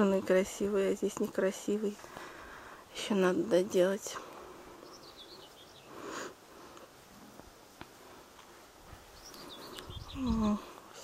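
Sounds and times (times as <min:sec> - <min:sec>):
songbirds chirping: 0:00.0 - 0:11.0.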